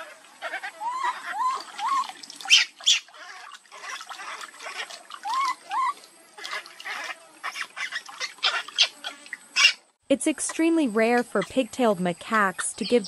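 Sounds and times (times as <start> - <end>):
baby monkey squealing: 0.0 - 9.8
water splashing and pouring: 1.4 - 8.7.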